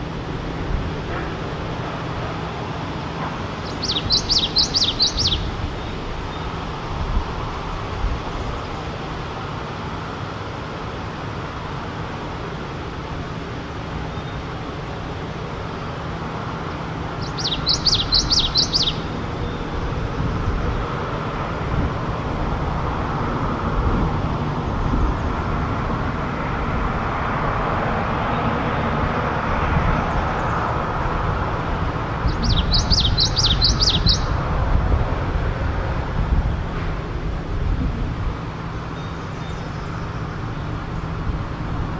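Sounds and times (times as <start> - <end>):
road traffic noise: 0.0 - 41.9
bird singing high notes: 3.6 - 5.5, 17.2 - 19.6, 32.3 - 34.3.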